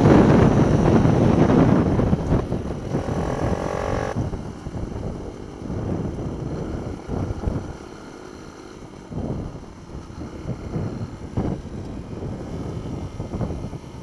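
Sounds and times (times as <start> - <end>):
wind buffeting microphone: 0.0 - 8.1, 8.8 - 14.0
minibike engine revving: 0.7 - 4.3.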